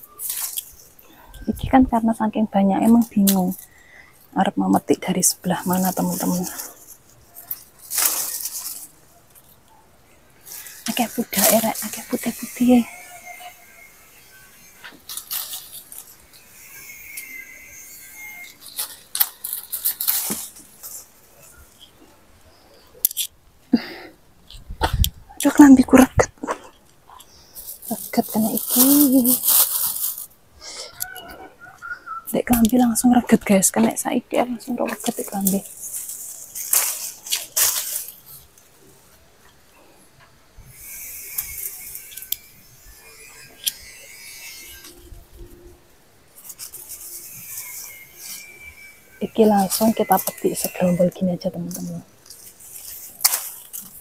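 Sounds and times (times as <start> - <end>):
leaves rustling: 0.0 - 54.0
fruit stems snapping: 52.2 - 54.0.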